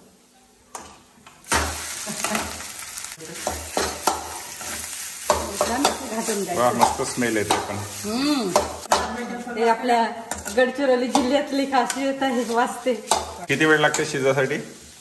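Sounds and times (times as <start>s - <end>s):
food sizzling lightly: 0.0s - 15.0s
spatula scraping pan: 3.2s - 9.1s, 10.2s - 15.0s.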